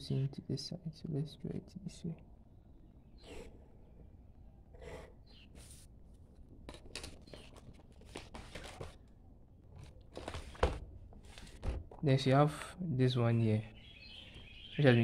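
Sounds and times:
paper sheets rustling: 6.7 - 9.0, 9.8 - 11.8.

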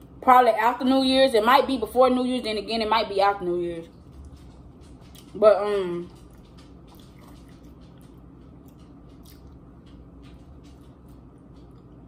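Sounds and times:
person chewing: 6.2 - 12.0.

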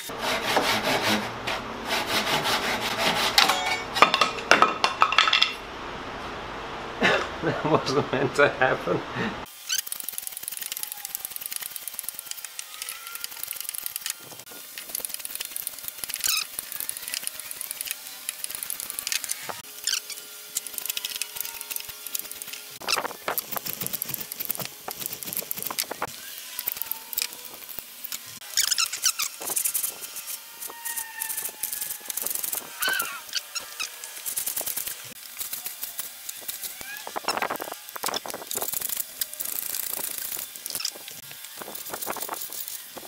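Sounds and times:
hand plane shaving wood: 0.0 - 3.4.

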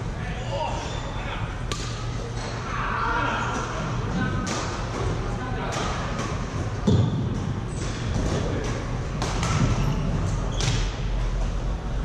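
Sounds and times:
steady low hum: 0.0 - 12.0
rackets striking shuttlecock: 1.7 - 2.1, 9.2 - 9.8.

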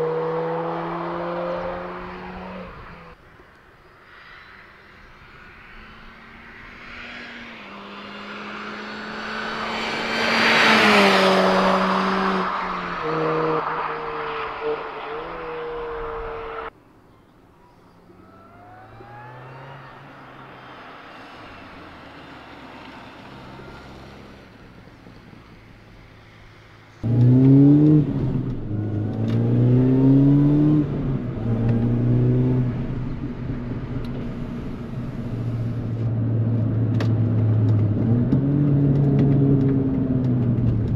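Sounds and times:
car engine accelerating through gears: 0.0 - 3.2, 7.7 - 16.7, 18.2 - 21.6, 27.0 - 40.9
car passing at speed: 0.0 - 3.2, 4.0 - 16.7, 18.2 - 24.8, 26.2 - 36.4.

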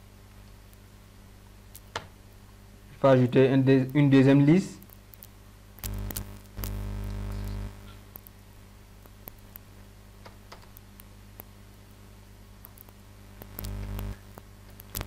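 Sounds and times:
low hum: 5.8 - 8.4, 13.2 - 15.0.

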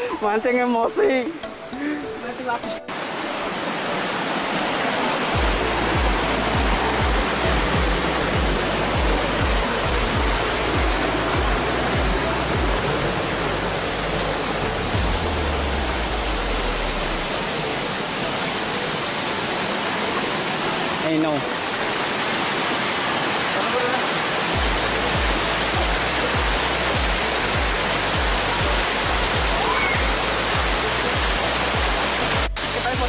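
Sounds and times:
waterfall roaring: 0.0 - 33.0
low bass thumps: 5.4 - 14.0, 14.6 - 17.2, 24.6 - 29.6.

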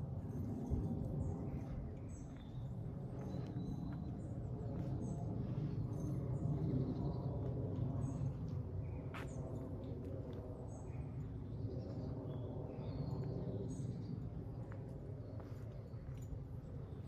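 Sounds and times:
low mechanical hum: 0.0 - 17.0
small birds chirping: 0.7 - 9.6.

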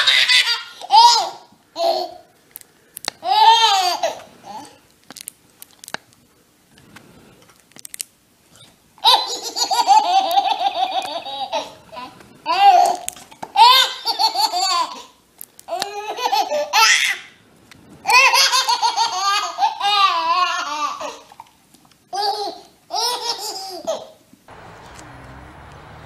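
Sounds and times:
baby laughing: 0.0 - 2.2, 3.2 - 4.8, 9.0 - 17.4, 18.0 - 21.3, 22.1 - 24.2
low background noise: 0.0 - 26.0.

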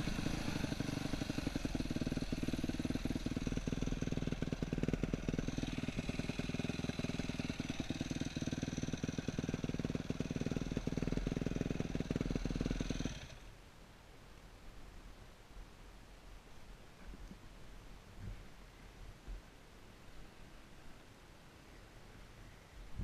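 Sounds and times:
dirt bike engine running: 0.0 - 13.5.

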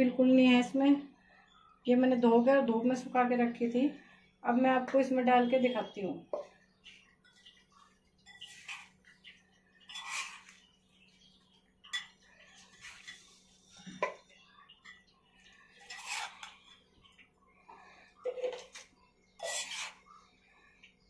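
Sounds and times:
faint steady hum: 0.0 - 21.0
spoon scraping ceramic and glass: 8.3 - 9.0, 9.9 - 10.6, 12.0 - 14.2, 15.8 - 16.7, 19.4 - 20.0.

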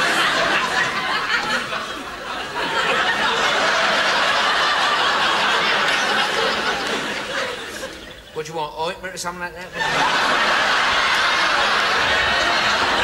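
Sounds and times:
audience laughing: 0.0 - 8.5, 9.6 - 13.0.

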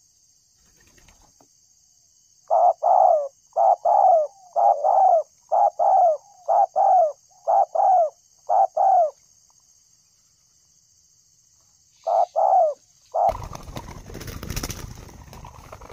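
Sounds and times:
doves cooing: 2.5 - 9.2, 12.0 - 15.9
noisy rustle: 13.3 - 15.9.

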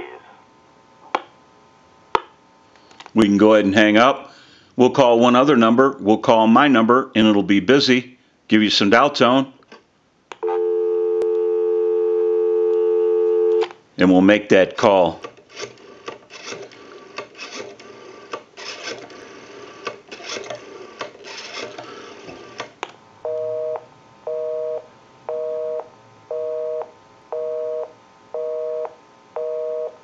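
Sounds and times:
busy signal beeps: 10.4 - 13.6, 23.3 - 30.0
rotary telephone dial spinning: 15.3 - 22.7.

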